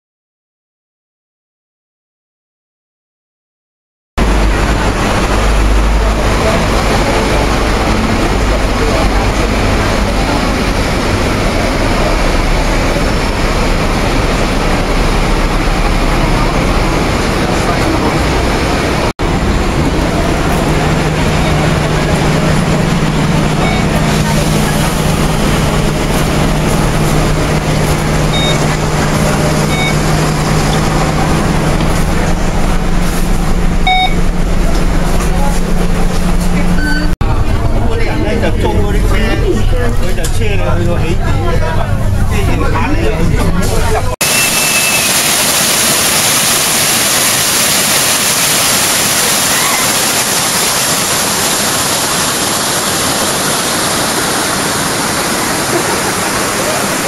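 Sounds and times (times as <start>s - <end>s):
bus engine idling: 4.2s - 57.0s
card reader beeps: 23.6s - 24.0s, 28.3s - 28.8s, 29.6s - 30.1s, 33.9s - 34.2s, 36.7s - 37.1s
stream cascading over rocks: 44.2s - 57.0s.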